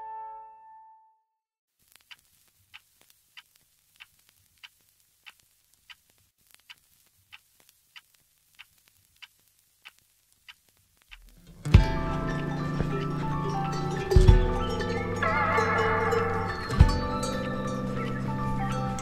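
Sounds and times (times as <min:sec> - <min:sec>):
faint evenly spaced clicks: 0:01.8 - 0:15.6.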